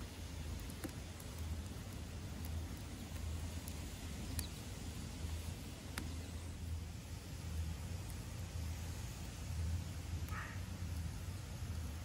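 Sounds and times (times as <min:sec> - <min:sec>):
sharp fire pops: 0:00.0 - 0:06.2
steady low rumble: 0:00.0 - 0:12.0
wood fire crackling: 0:00.0 - 0:12.0.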